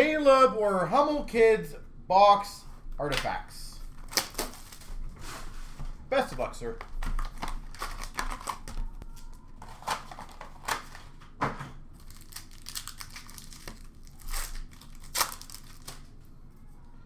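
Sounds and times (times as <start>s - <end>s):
card wrapping crinkling: 3.8s - 5.4s, 6.7s - 11.3s, 11.9s - 16.2s
wrapping ripping: 3.9s - 4.9s, 7.2s - 11.1s, 12.0s - 16.2s.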